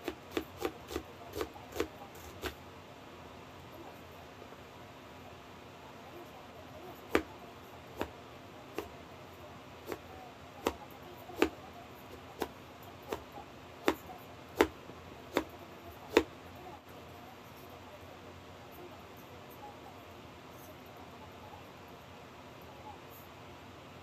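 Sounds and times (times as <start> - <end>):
knife chopping on cutting board: 0.0 - 2.6, 7.1 - 7.3, 9.8 - 10.0, 11.4 - 14.0, 14.6 - 15.5, 16.1 - 16.3.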